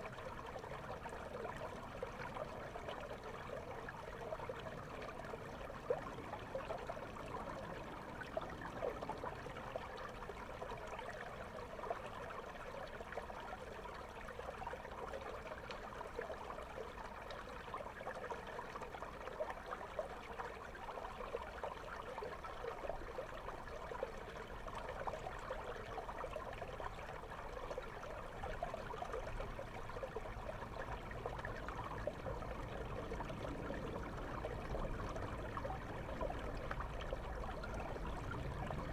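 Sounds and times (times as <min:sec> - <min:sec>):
underwater river flow: 0:00.0 - 0:38.9.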